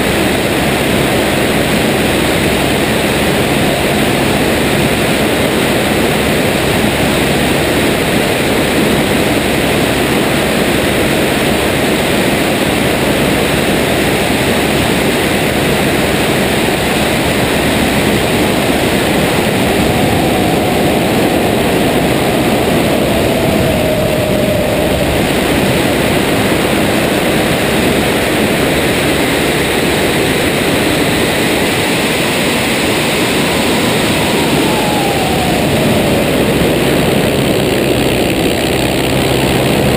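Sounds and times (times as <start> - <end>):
plane engine and propeller: 0.0 - 39.9
rush of airflow: 12.1 - 39.9
faint tone sliding down: 17.4 - 28.3, 32.1 - 39.9.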